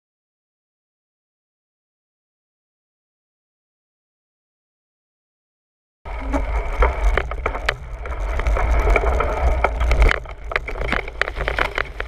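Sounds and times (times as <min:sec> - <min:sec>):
bike rattling over rough trail: 0:06.1 - 0:12.0
low rumble: 0:06.1 - 0:12.0.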